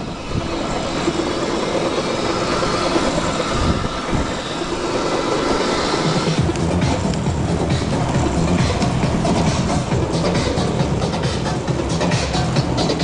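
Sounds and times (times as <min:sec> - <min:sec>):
skate wheels rolling on asphalt: 0:00.0 - 0:13.0
music: 0:05.9 - 0:13.0.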